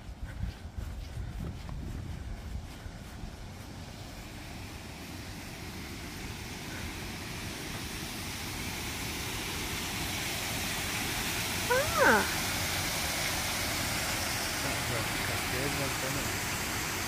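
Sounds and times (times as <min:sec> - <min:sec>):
waterfall rushing: 0:04.7 - 0:17.0
person's voice: 0:11.7 - 0:12.4.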